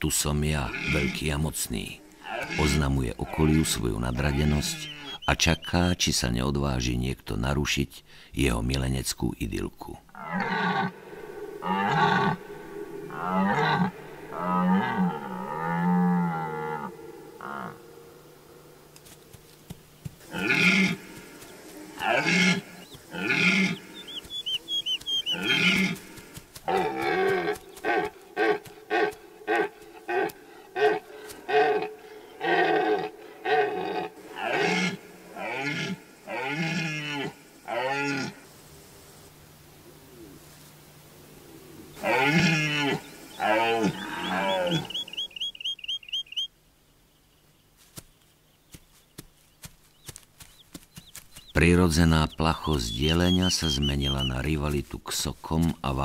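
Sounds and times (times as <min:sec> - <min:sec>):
stag roaring: 0:10.2 - 0:18.2, 0:42.0 - 0:45.0
stag grunts: 0:42.0 - 0:45.0.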